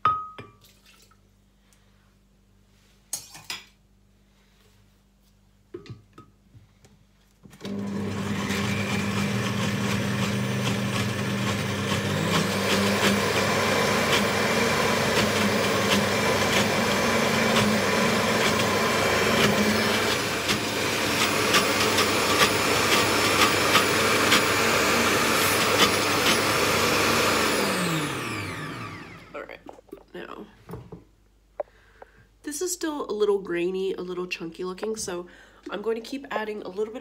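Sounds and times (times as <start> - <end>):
blender motor running: 7.6 - 29.4.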